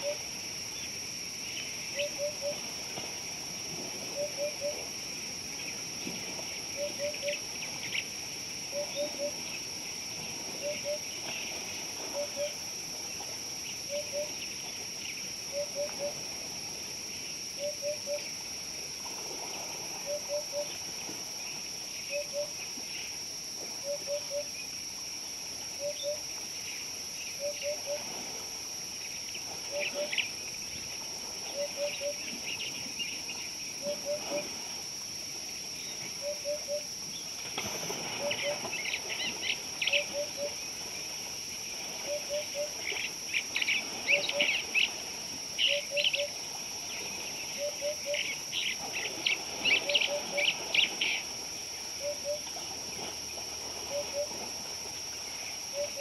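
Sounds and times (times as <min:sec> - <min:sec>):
high-pitched insect drone: 0:36.2 - 0:37.0.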